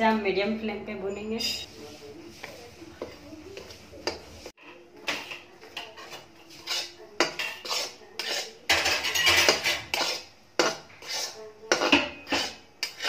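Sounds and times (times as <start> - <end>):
spatula scraping flour in metal pan: 5.2 - 13.0.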